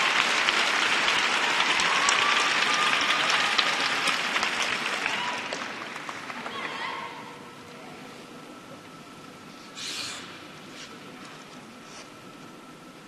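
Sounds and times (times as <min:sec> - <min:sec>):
crowd applauding: 0:00.0 - 0:07.2.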